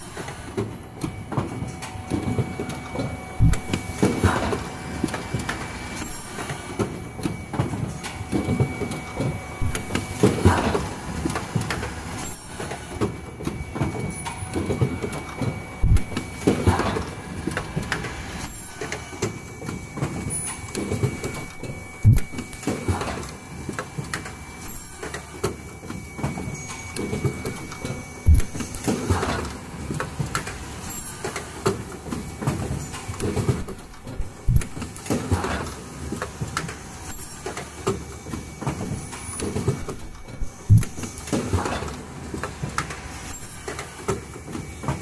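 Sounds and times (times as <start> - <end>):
machine clattering and knocking: 0.0 - 25.6, 26.2 - 45.0
faint steady whine: 0.0 - 35.0
machine thumps: 3.4 - 4.5, 9.2 - 10.8, 15.8 - 16.9, 21.1 - 22.5, 27.5 - 29.0, 33.3 - 35.5, 39.6 - 41.1.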